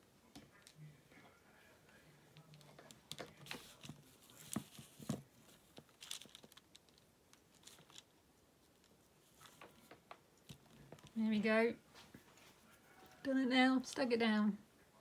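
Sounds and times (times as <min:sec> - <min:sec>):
fabric and paper rustling: 0:02.4 - 0:11.2.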